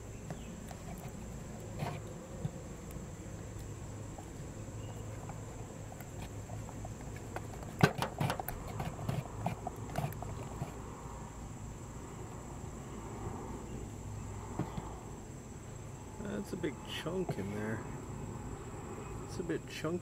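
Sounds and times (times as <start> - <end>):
high insect drone: 0.0 - 20.0
handle knocking and scraping a can: 0.2 - 2.6, 4.1 - 10.8.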